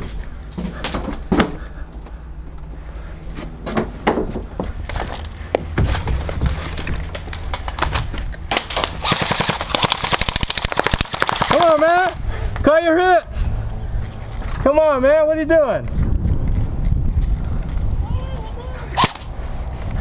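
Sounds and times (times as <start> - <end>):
airsoft gun shots: 8.5 - 12.0
rapid full-auto burst: 8.7 - 12.0.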